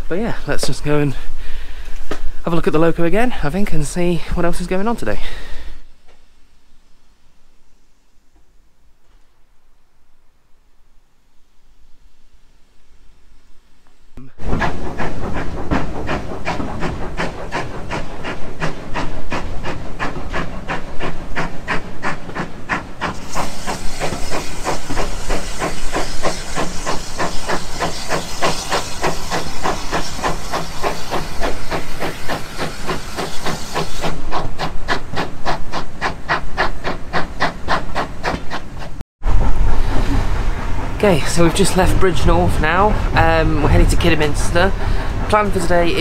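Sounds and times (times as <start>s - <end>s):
steam hissing: 0.0s - 8.8s, 11.4s - 46.0s
steam locomotive chuffing: 14.2s - 46.0s.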